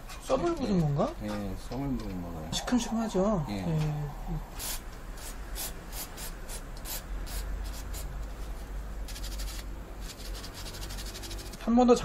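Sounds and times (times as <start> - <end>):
steady low hum: 0.0 - 11.6
gloved hands scratching parts: 9.1 - 11.6.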